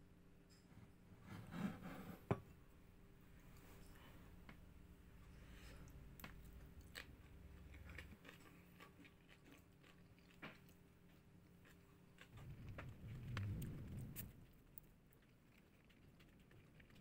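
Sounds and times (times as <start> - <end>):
faint steady hum: 0.0 - 17.0
chewing: 5.5 - 17.0.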